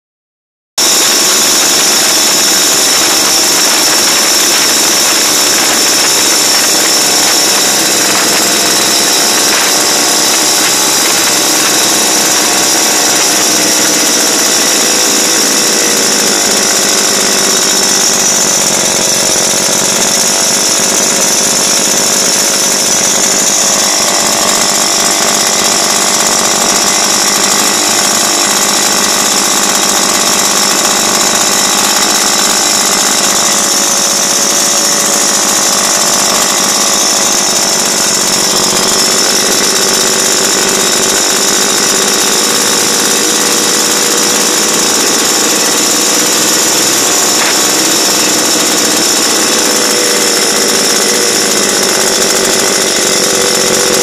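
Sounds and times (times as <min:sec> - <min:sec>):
two-stroke engine running: 0:00.8 - 0:54.0.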